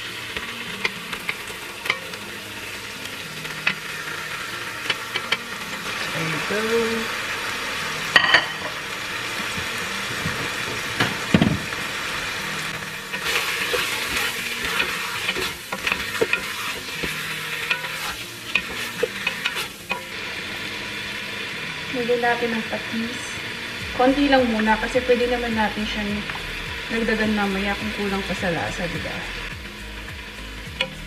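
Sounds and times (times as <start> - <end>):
chicken sizzling in hot oil: 0.0 - 31.0
wooden spoon scraping a pot: 13.1 - 20.1.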